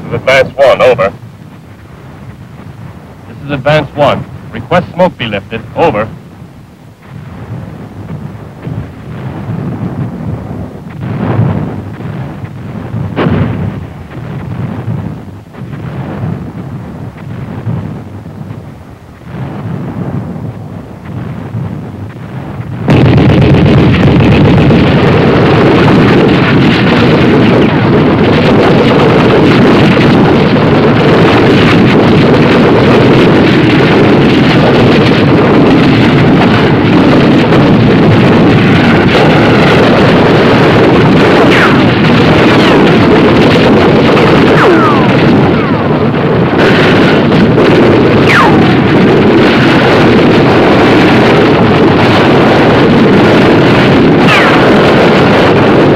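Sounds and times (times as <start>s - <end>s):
roar of battle gunfire: 41.3s - 42.8s, 43.4s - 47.5s, 53.8s - 55.5s.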